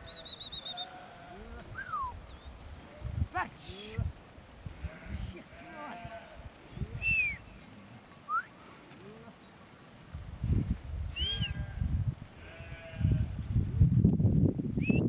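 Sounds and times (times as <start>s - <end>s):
sheep bleating: 0.0s - 1.7s, 4.7s - 6.5s, 11.3s - 13.4s.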